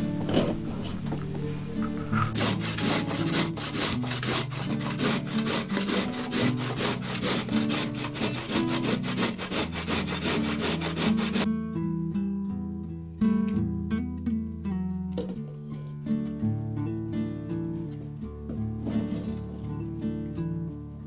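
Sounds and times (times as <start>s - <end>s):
carrot rasping on metal grater: 2.0s - 11.5s, 18.9s - 19.6s.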